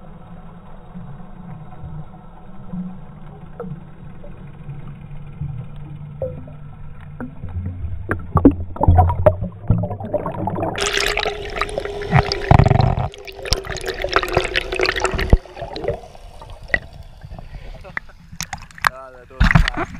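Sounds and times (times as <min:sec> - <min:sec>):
muffled underwater noise: 0:00.0 - 0:19.9
steady hum: 0:00.0 - 0:19.9
bubbling: 0:05.4 - 0:19.9.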